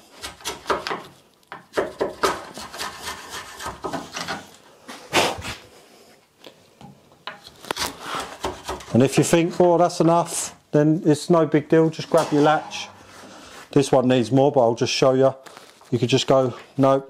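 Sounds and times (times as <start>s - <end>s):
chisel scraping wood: 0.1s - 4.6s, 7.6s - 9.0s.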